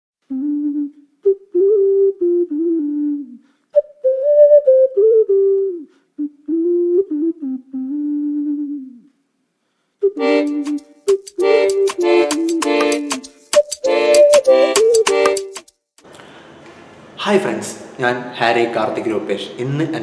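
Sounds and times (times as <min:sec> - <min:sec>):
person humming a slow tune: 0:00.2 - 0:03.4, 0:04.0 - 0:09.2
instrumental music with clicking beat: 0:10.0 - 0:15.8.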